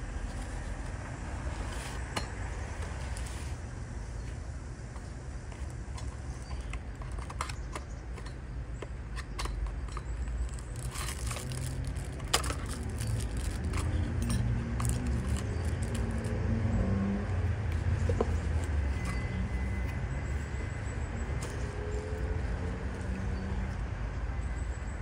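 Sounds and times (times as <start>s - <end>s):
cardboard box clicks and scrapes: 0.2s - 2.2s.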